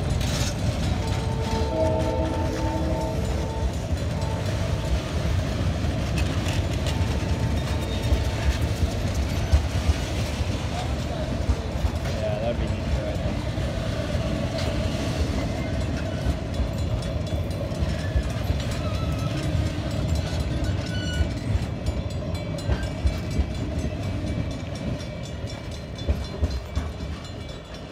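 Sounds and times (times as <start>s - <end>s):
train wheels rumbling on rails: 0.0s - 27.9s.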